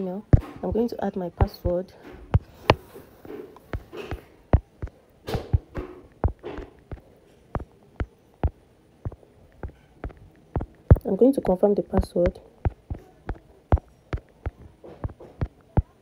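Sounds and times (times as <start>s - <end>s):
fingertip taps on touchscreen: 1.4s - 16.0s.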